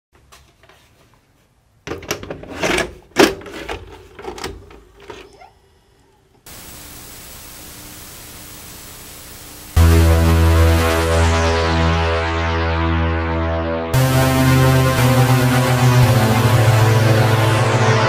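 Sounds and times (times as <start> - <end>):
tape static hiss: 6.5 - 11.0.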